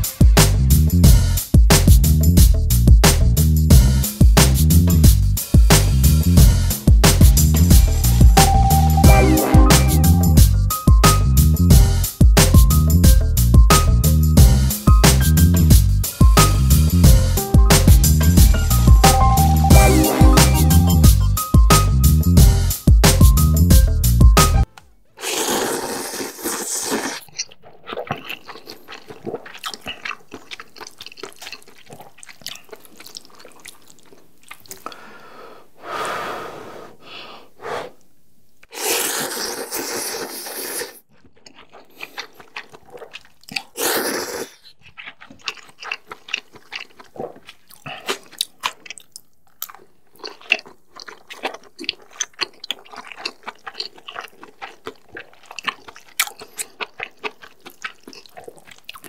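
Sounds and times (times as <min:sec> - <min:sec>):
wet chewing and smacking: 0:24.5 - 0:35.2, 0:38.6 - 0:59.0
person slurping noodles: 0:25.2 - 0:34.0, 0:38.7 - 0:45.6.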